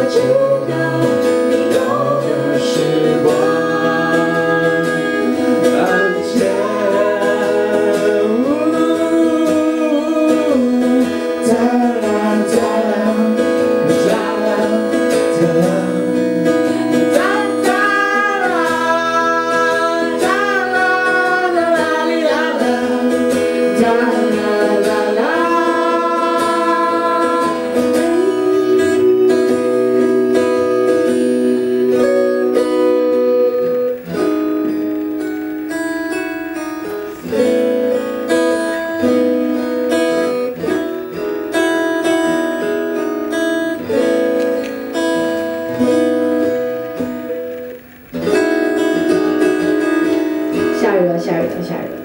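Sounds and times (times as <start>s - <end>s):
woman singing: 0.0s - 34.2s
strummed acoustic guitar: 0.0s - 52.0s.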